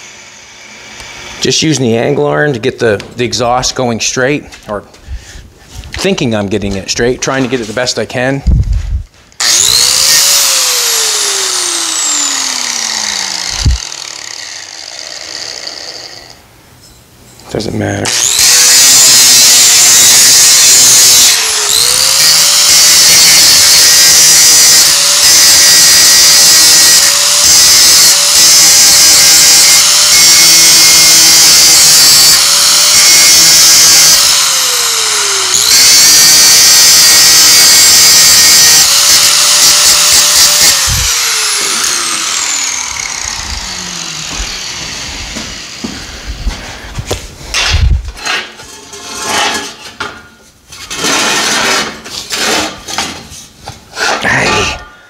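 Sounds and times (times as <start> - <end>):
angle grinder grinding steel: 9.3 - 16.5, 18.0 - 46.5, 50.7 - 53.1
angle grinder winding down: 9.4 - 16.4, 18.0 - 46.2.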